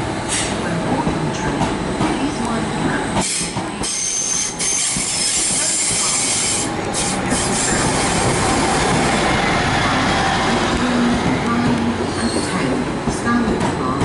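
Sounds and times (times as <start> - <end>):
train wheels rumbling on rail: 0.0 - 14.0
high wheel squeal: 3.3 - 8.7.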